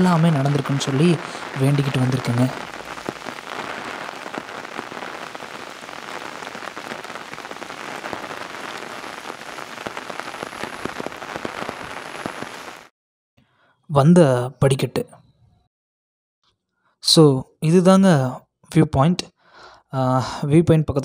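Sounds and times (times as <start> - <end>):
rain drops pattering: 0.0 - 12.9.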